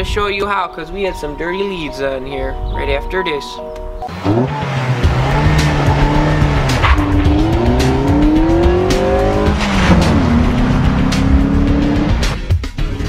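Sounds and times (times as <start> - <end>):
car engine accelerating: 4.0 - 12.5.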